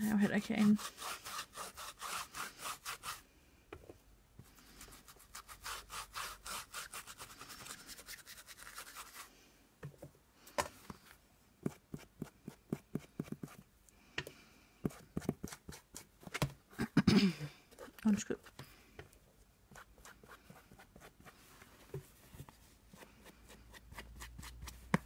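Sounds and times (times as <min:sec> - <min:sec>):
rubbing strokes on paper: 0:00.0 - 0:03.2, 0:04.4 - 0:09.3.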